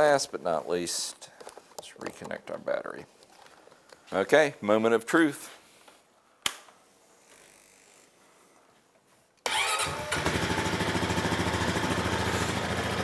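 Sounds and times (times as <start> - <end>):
atv engine starting and idling: 9.4 - 13.0.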